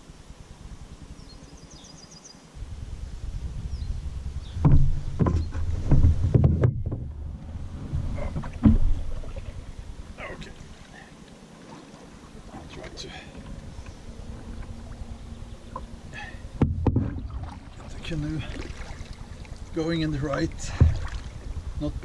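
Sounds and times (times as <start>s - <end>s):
low steady rumble: 0.0s - 22.0s
knocks on canoe hull: 4.6s - 7.1s, 8.3s - 9.0s, 16.6s - 17.6s, 20.7s - 21.2s.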